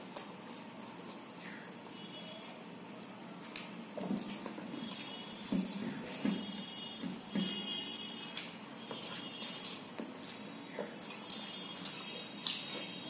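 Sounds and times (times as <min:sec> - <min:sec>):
fingers squelching in rice and curry: 0:00.0 - 0:13.0
chewing and lip smacks: 0:08.3 - 0:13.0.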